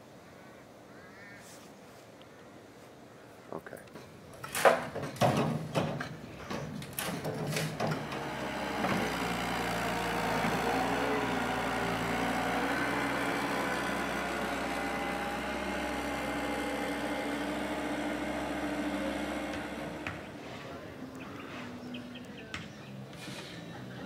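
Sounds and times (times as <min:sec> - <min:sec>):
diesel engine running: 0:07.5 - 0:22.3.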